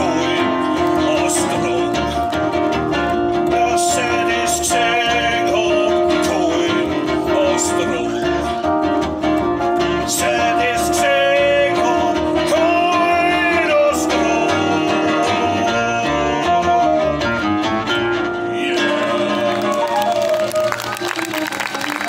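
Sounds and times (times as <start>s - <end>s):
person singing into a microphone: 0.0s - 2.4s, 3.3s - 8.7s, 9.9s - 17.3s, 18.4s - 20.5s
live band music: 0.0s - 22.0s
plucked double bass: 0.0s - 22.0s.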